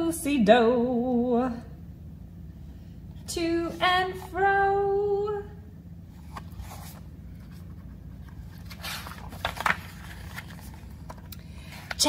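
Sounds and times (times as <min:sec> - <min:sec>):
low steady hum: 0:00.0 - 0:12.0
book pages rustling: 0:06.1 - 0:12.0.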